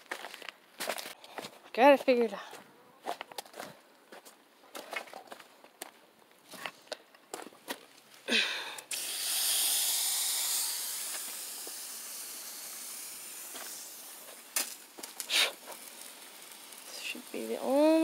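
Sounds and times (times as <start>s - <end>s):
water hissing from hose: 8.8s - 18.0s.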